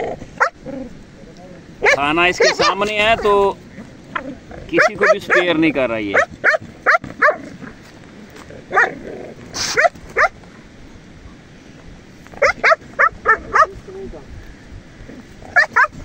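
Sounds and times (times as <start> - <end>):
puppy yapping barks: 0.4 - 0.6, 1.8 - 2.9, 4.8 - 7.5, 8.7 - 9.0, 9.6 - 10.4, 12.4 - 13.8, 15.5 - 16.0
brief hiss: 9.5 - 10.0.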